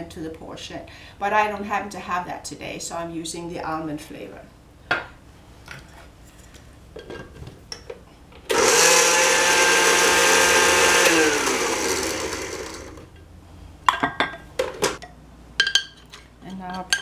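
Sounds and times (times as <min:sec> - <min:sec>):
blender motor running: 0:08.5 - 0:13.1.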